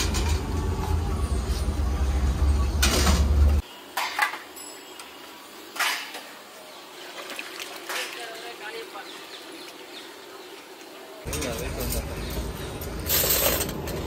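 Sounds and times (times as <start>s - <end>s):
metal canisters clanking: 11.3s - 14.0s.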